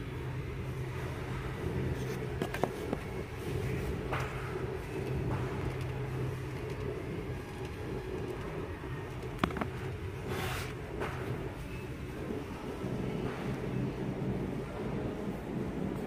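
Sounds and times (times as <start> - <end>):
low shop hum: 0.0 - 16.0
book rustling: 1.9 - 3.1, 9.4 - 10.8.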